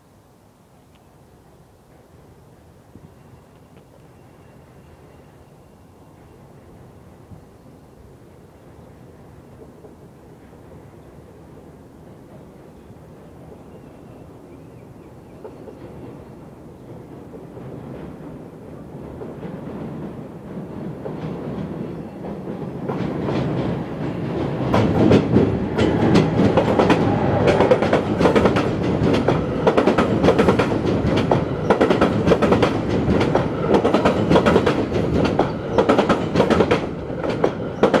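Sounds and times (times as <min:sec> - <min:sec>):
train wheels clattering on rail joints: 0:15.4 - 0:38.0.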